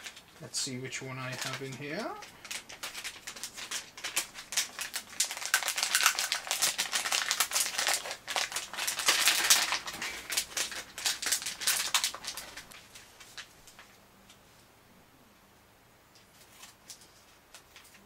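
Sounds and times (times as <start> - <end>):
toy packaging crackling: 1.1 - 13.9.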